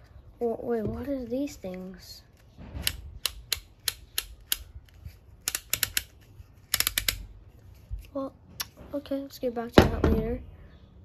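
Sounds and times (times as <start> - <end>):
small plastic parts clicking: 1.6 - 7.4.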